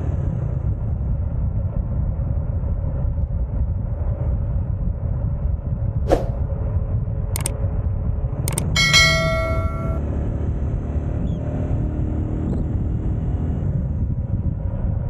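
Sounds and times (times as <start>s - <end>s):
sharp clicks: 8.5s - 8.9s
bell-like ding: 8.5s - 10.0s.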